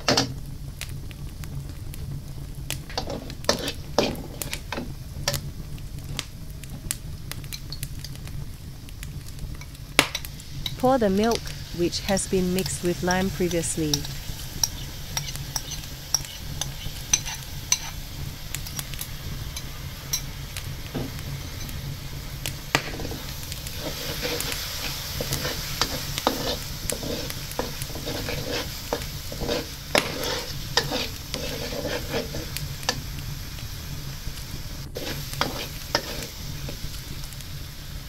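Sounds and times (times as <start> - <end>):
low hum: 0.0 - 38.0
sauce sizzling: 0.0 - 38.0
spatula scraping a wok: 2.9 - 5.5, 9.6 - 33.2, 35.0 - 37.3.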